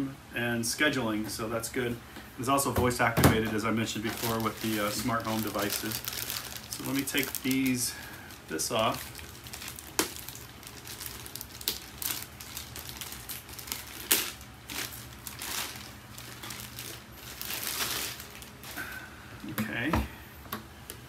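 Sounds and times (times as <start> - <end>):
packaging crinkling: 3.6 - 19.0.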